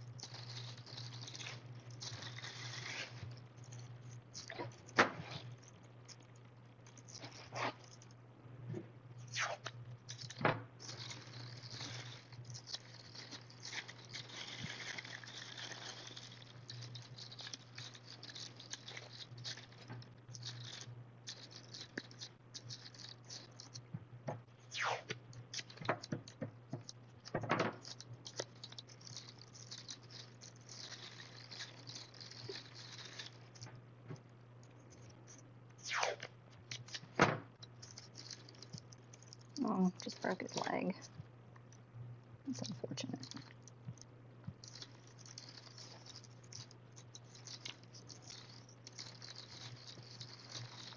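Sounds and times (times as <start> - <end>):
plastic bag crinkling: 0.0 - 8.2, 9.8 - 23.8, 25.4 - 33.8, 36.2 - 41.8, 42.5 - 50.9
steady low hum: 0.0 - 50.9
masking tape ripped off roll: 1.2 - 3.2, 9.2 - 16.2, 24.7 - 25.8, 35.8 - 37.2.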